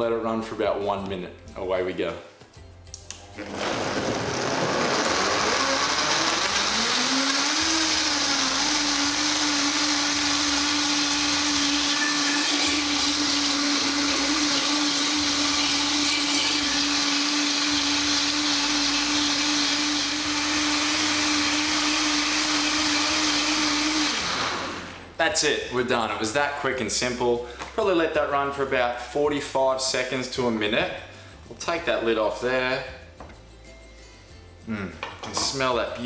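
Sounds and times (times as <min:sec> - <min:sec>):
blender running: 0:03.4 - 0:25.1.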